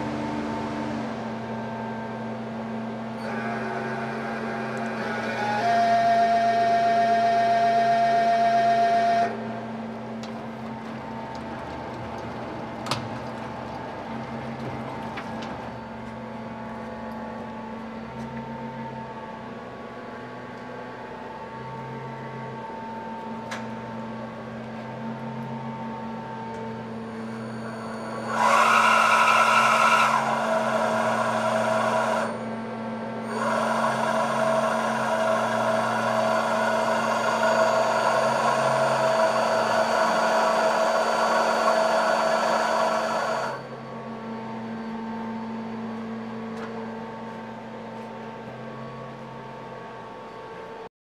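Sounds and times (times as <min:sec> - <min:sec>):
loud machine whirring with hiss: 0:00.0 - 0:09.7, 0:26.3 - 0:44.5
machine humming: 0:00.0 - 0:47.9.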